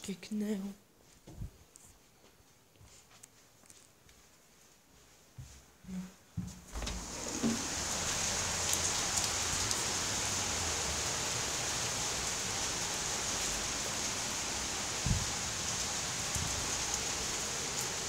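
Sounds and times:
steady rain hiss: 6.7 - 18.0.

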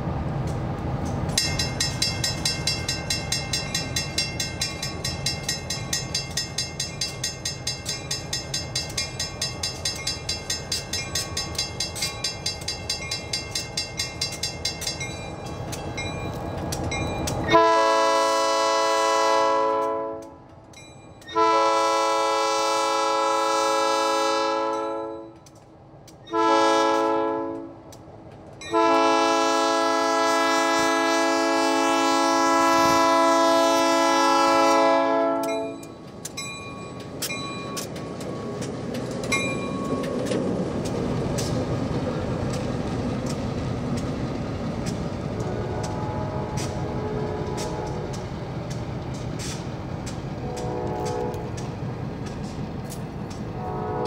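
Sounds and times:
locomotive bell ringing: 1.3 - 17.9, 20.7 - 21.7, 28.6 - 29.4, 34.3 - 40.7
locomotive air horn blasts: 17.5 - 20.4, 21.3 - 25.4, 26.3 - 27.8, 28.7 - 35.8, 45.4 - 48.2, 50.4 - 51.6, 53.6 - 54.0.

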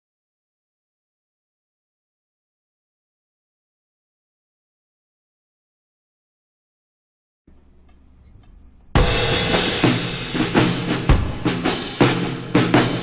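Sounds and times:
band music with drum kit: 9.0 - 13.0.

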